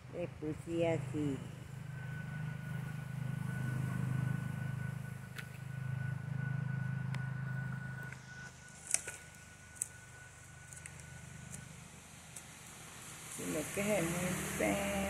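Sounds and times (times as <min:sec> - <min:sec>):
low motor hum: 0:00.0 - 0:15.0
thin high steady tone: 0:00.1 - 0:15.0.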